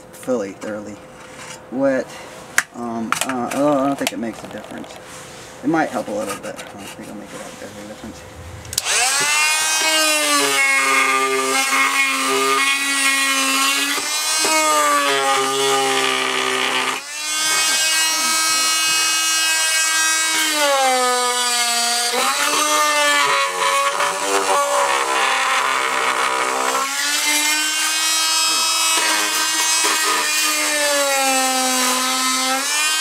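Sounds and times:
oscillating multi-tool buzzing whine: 8.7 - 33.0.

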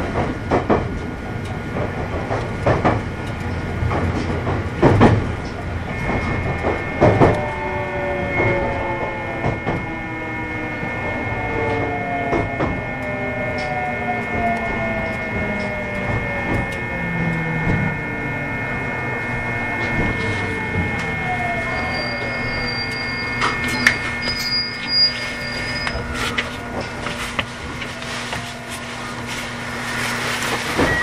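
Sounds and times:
rail joints clicking: 0.0 - 10.6, 11.4 - 18.3
train motor whine falling: 2.6 - 31.0
high inverter tones: 5.2 - 31.0.

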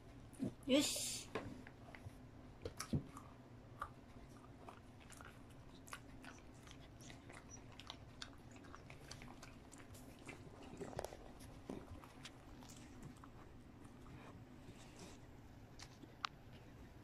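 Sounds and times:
dog chewing: 2.6 - 16.0.

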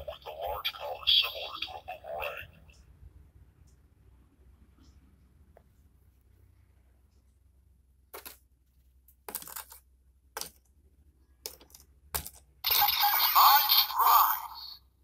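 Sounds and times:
electronic sound effect from toy: 12.6 - 14.8.

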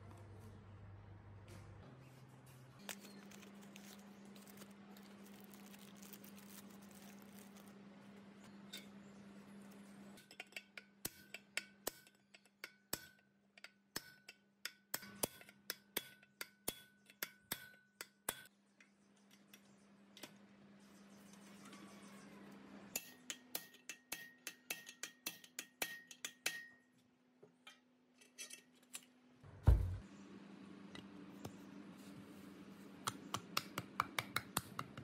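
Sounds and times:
hammer tapping steel pipe: 10.3 - 18.5, 23.0 - 26.9.

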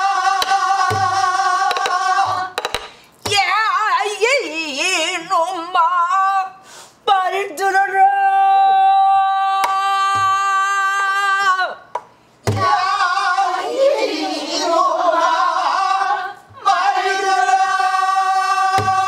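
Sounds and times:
barrel drum strokes: 0.4 - 2.9, 18.7 - 19.0
woman singing: 3.3 - 11.8.

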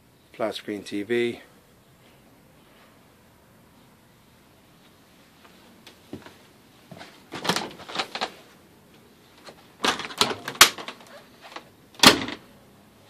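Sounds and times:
refrigerator door plastic clacks: 9.8 - 12.4.

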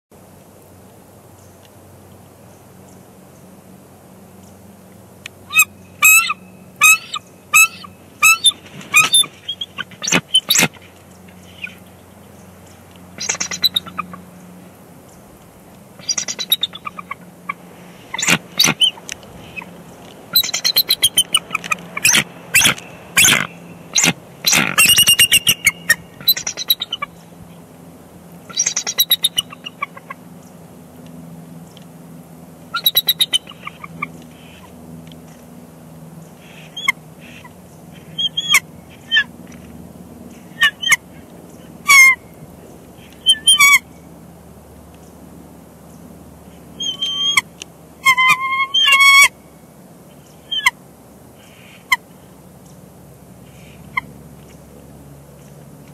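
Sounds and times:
eagles chittering calls: 5.5 - 10.8, 13.2 - 14.4, 16.0 - 27.2, 36.3 - 39.4, 40.3 - 42.2, 43.0 - 43.9, 46.7 - 49.4.

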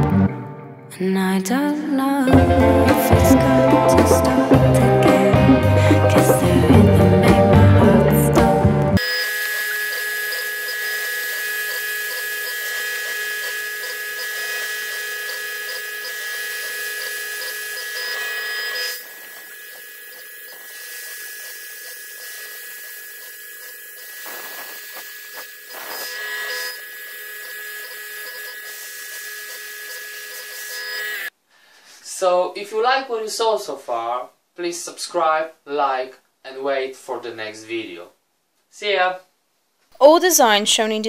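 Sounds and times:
background music: 0.0 - 9.0
mill spindle whining: 9.0 - 31.3.

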